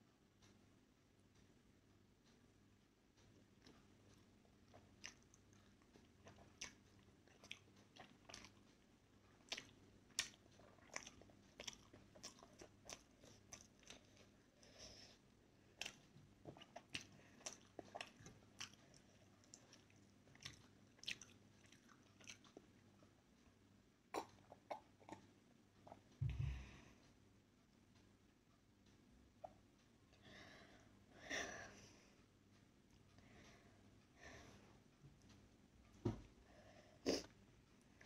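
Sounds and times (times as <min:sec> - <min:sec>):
wet mouth chewing: 0:04.7 - 0:08.8, 0:09.4 - 0:14.4, 0:15.8 - 0:22.8.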